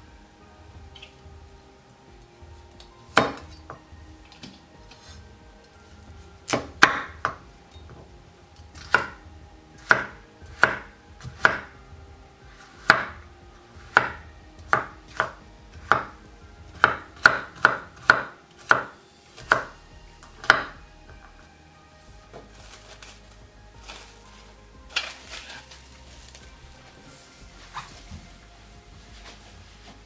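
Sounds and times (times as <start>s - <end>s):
knife chopping on wooden board: 9.8s - 11.7s.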